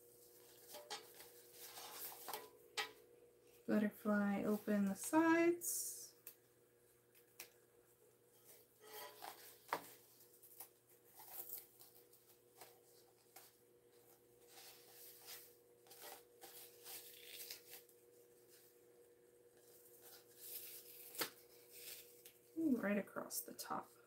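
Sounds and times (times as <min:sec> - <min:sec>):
vinyl bag lining crinkling: 0:00.1 - 0:02.5, 0:09.1 - 0:18.8, 0:19.5 - 0:22.6.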